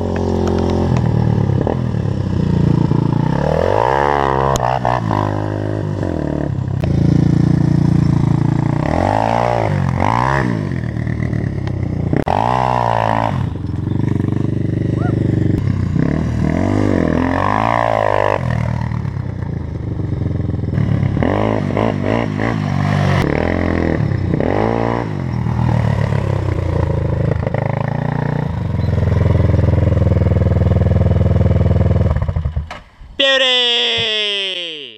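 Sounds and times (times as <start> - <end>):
quad bike engine revving: 0.0 - 32.8.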